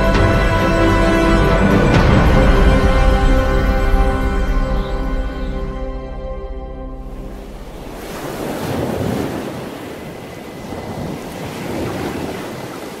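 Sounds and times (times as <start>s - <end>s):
sea water rushing: 6.9s - 13.0s.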